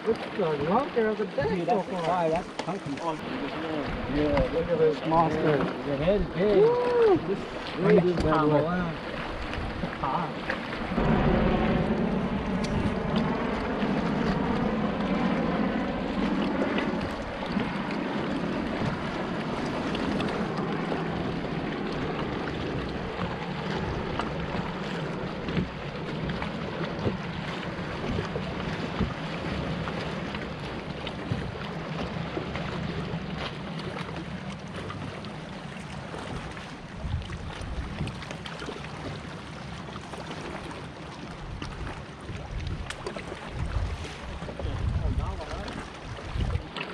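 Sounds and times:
boat motor running: 0.0 - 46.9
wind noise on microphone: 9.3 - 10.1, 10.7 - 30.0, 36.3 - 38.3, 41.4 - 46.7.

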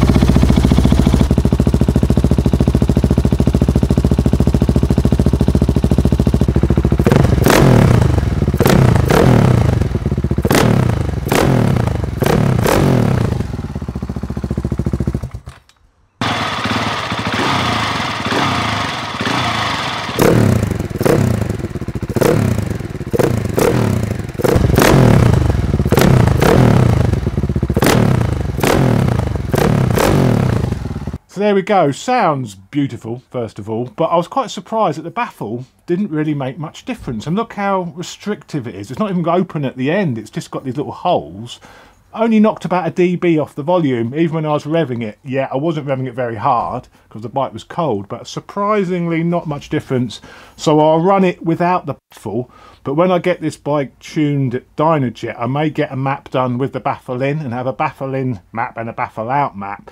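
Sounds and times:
motorcycle engine idling and revving: 0.0 - 31.2.

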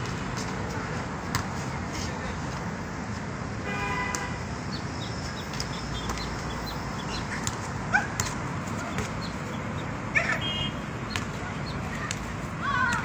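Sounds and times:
basketball bouncing: 5.5 - 6.5, 7.1 - 9.3.

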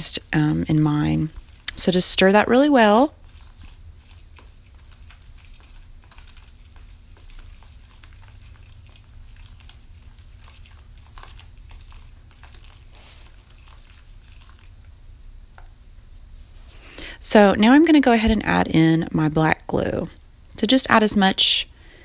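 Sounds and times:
wet squelching of stirred glue: 0.0 - 15.7
steady low hum: 0.0 - 22.0.

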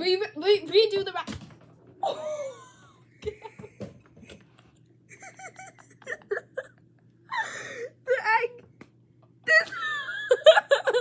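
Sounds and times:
girls giggling and laughing: 2.0 - 3.8, 5.1 - 7.7, 9.5 - 11.0.

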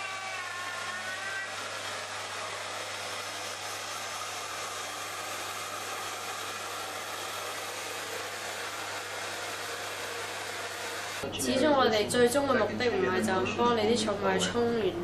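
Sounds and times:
hair dryer blowing air: 0.0 - 11.2.

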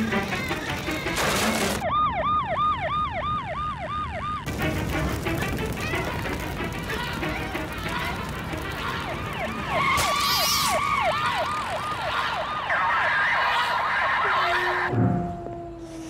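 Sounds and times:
fire engine siren yelping: 0.0 - 4.6, 5.6 - 16.0.

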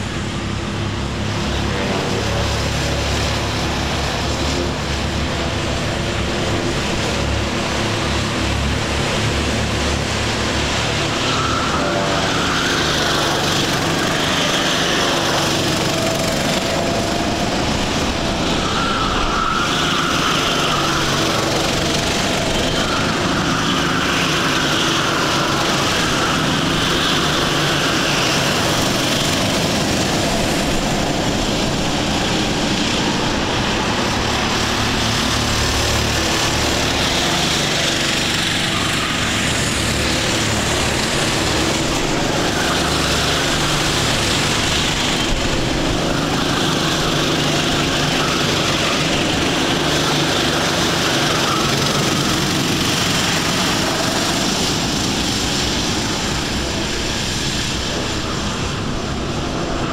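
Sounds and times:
racing kart engines: 0.0 - 59.9.

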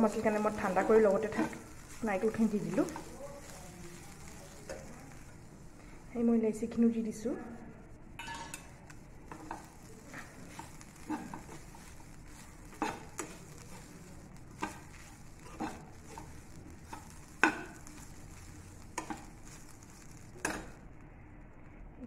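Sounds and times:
metal spatula scraping pan: 0.0 - 3.6, 9.3 - 20.8
coconut shuffling in pan: 0.0 - 6.1, 8.6 - 20.8.

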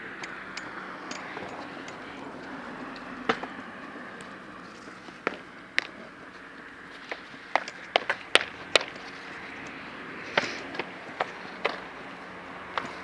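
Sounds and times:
scooter wheels rolling on concrete: 0.0 - 13.0
sharp scooter clacks: 7.0 - 13.0.

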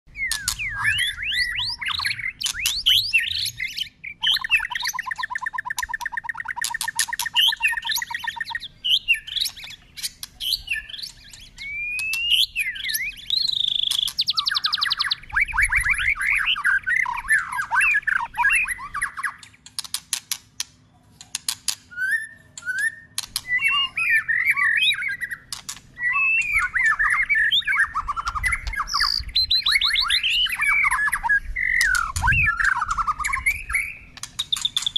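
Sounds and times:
bird singing whistled phrases: 0.1 - 19.6, 21.9 - 34.9
sharp clicks: 19.4 - 21.8, 22.6 - 23.6, 25.5 - 25.9, 34.1 - 34.9.

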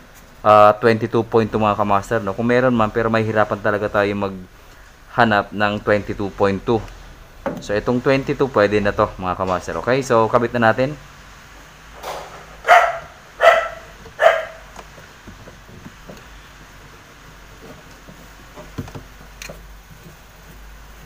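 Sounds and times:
dog barking: 12.6 - 14.7.

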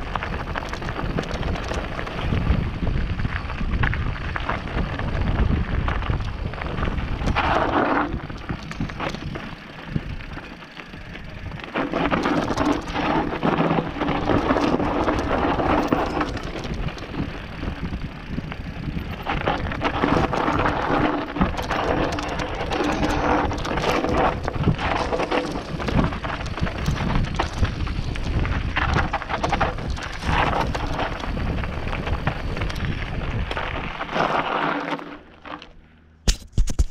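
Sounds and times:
wind buffeting microphone: 0.0 - 10.5, 11.2 - 34.2
bike rattling: 0.0 - 36.9
tyres crunching over stones: 0.0 - 36.9.

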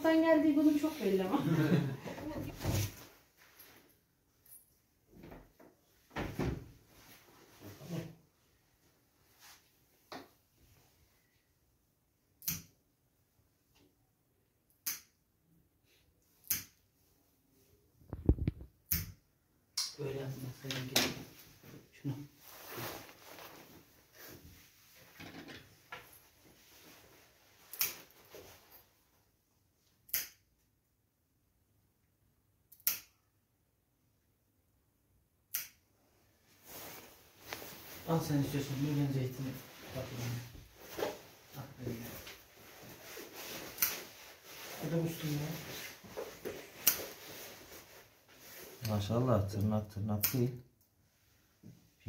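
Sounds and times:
nail clipper clicking: 12.4 - 12.7, 30.1 - 30.4, 32.7 - 33.2, 35.5 - 35.8.

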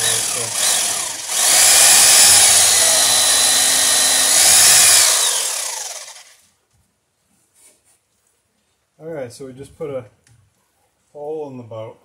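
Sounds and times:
electric drill boring wood: 0.0 - 6.4.

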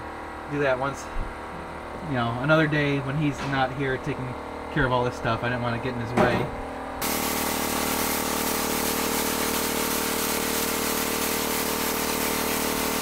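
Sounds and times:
motor hum: 0.0 - 13.0
spray gun hissing: 7.0 - 13.0.

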